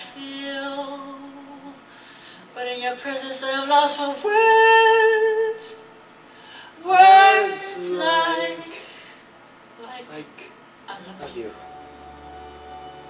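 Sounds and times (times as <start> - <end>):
high solo singing voice: 6.8 - 8.9.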